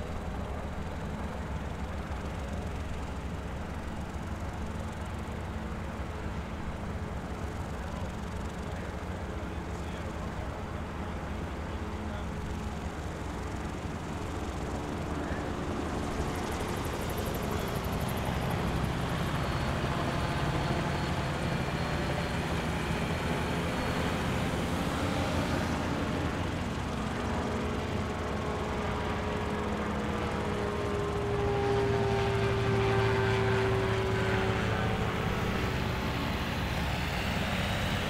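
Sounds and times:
rotorcraft engines droning: 0:00.0 - 0:38.0
higher engine tone rising in pitch: 0:30.4 - 0:38.0.

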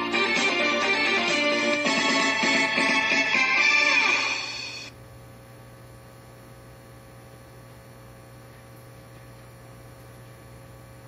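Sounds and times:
low electrical hum: 0:04.2 - 0:11.0.

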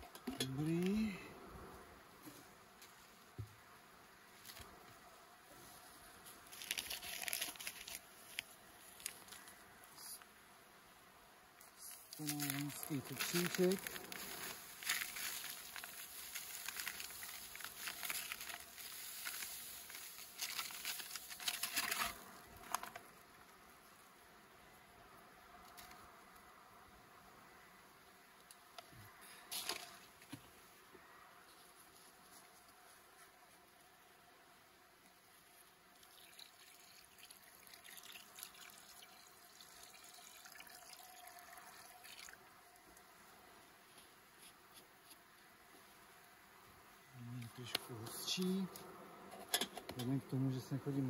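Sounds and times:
paper bag crinkling: 0:06.4 - 0:09.6, 0:11.8 - 0:23.0.

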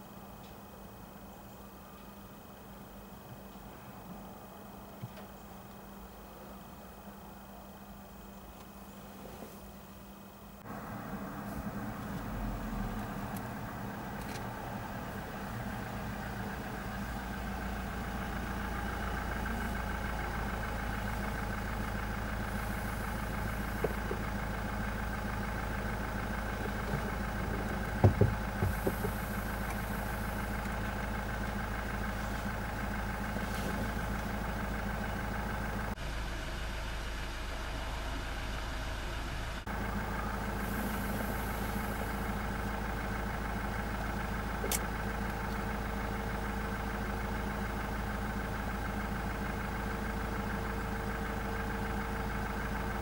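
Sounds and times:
car engine idling: 0:09.8 - 0:53.0
short knocks: 0:26.7 - 0:29.2.

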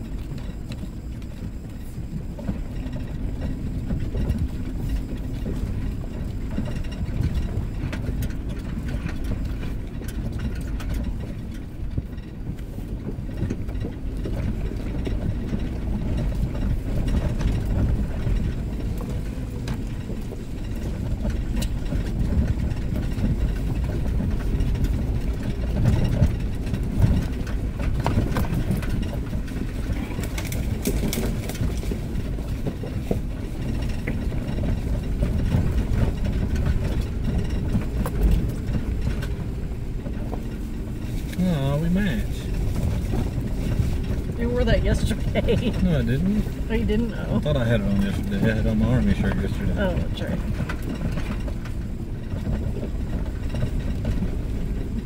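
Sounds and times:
car engine rumble: 0:00.0 - 0:55.0.

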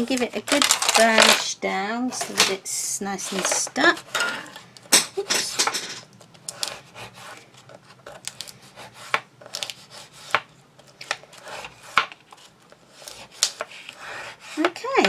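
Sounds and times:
card being rubbed and scraped: 0:06.5 - 0:10.5, 0:11.3 - 0:14.8.

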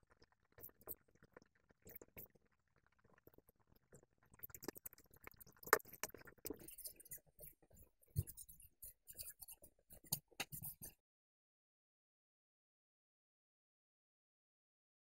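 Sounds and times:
small clicks and taps: 0:04.3 - 0:10.9.

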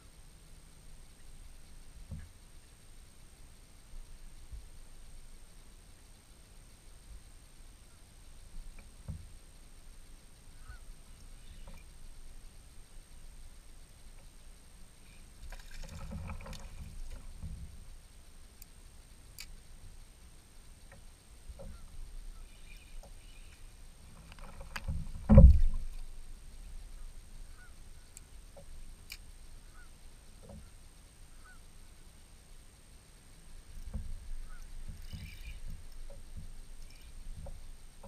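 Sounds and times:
loud thump: 0:25.2 - 0:25.8
spinning reel winding: 0:34.5 - 0:36.1, 0:36.8 - 0:37.3.

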